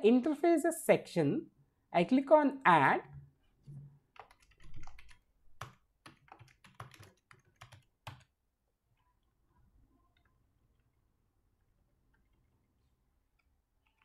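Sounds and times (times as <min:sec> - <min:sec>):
keyboard typing: 0:04.1 - 0:08.3, 0:13.3 - 0:14.0.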